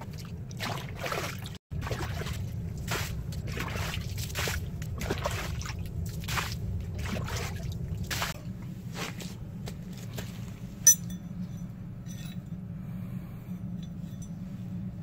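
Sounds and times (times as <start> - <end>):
water splashing on wet ground: 0.0 - 8.4
low steady hum: 0.0 - 15.0
metal spanner clinking on steel: 10.8 - 12.5.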